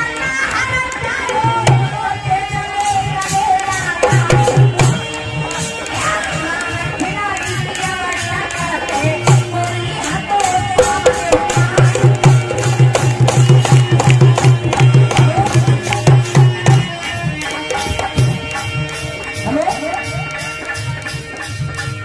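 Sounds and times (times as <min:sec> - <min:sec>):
hand drum fast beat: 0:00.6 - 0:22.0
folk melody line: 0:08.8 - 0:22.0.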